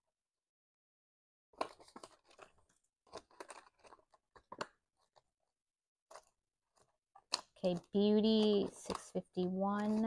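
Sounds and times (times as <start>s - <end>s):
plastic sleeves crinkling: 1.6s - 5.4s, 6.1s - 10.0s
banknotes rustling and flicking: 6.1s - 10.0s.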